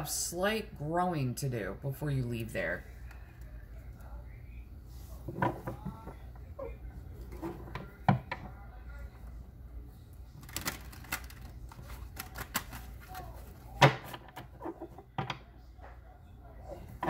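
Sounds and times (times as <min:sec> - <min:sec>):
cards shuffling: 0:10.4 - 0:14.8.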